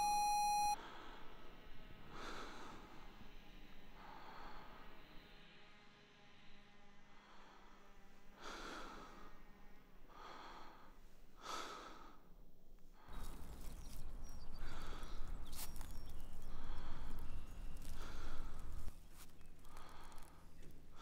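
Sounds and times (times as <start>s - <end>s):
man breathing heavily: 10.1s - 13.3s, 14.5s - 21.0s.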